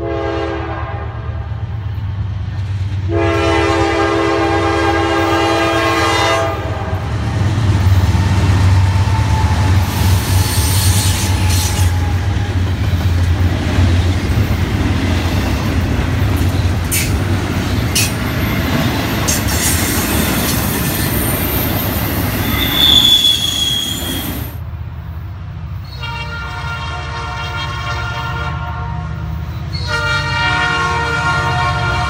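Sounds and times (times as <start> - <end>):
locomotive horn: 0.0 - 1.6, 3.0 - 7.3, 25.9 - 32.0
freight train rumbling on rails: 0.0 - 32.0
sharp train clanks: 6.6 - 24.6
high wheel squeal: 8.9 - 12.5, 17.8 - 24.6.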